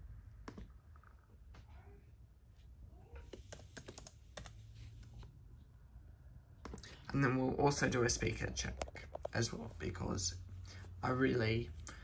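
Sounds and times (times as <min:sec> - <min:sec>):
faint laptop keyboard typing: 0:03.1 - 0:05.3.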